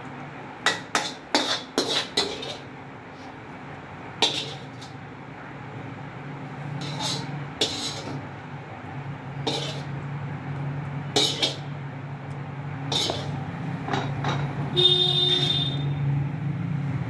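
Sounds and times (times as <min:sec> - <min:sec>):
metal ladle scraping wok: 0:00.6 - 0:03.4, 0:04.2 - 0:05.0, 0:06.5 - 0:08.3, 0:09.4 - 0:10.0, 0:11.1 - 0:11.8, 0:12.8 - 0:14.5.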